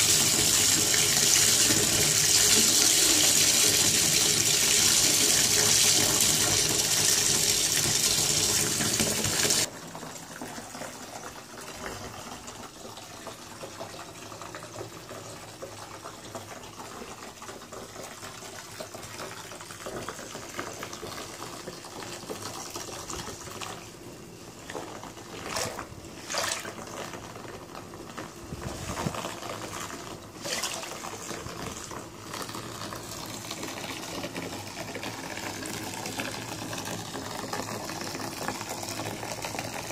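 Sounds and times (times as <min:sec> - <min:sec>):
tap water pouring into bathwater: 0:00.0 - 0:39.9
water splashes: 0:24.6 - 0:27.5, 0:28.5 - 0:32.5.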